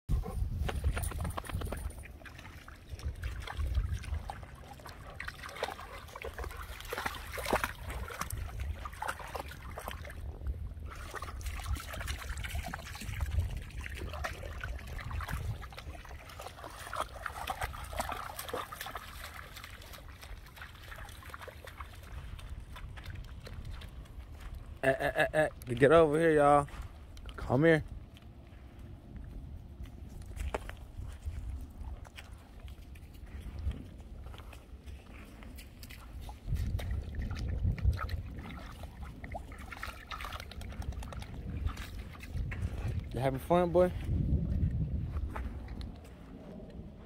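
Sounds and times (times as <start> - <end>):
dogs splashing in water: 0.1 - 24.8, 32.0 - 43.1.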